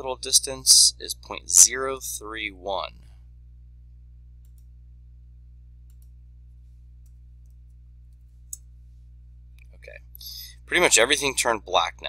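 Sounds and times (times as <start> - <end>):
low electrical hum: 0.0 - 12.0
computer mouse clicks: 4.4 - 4.7, 5.9 - 6.1.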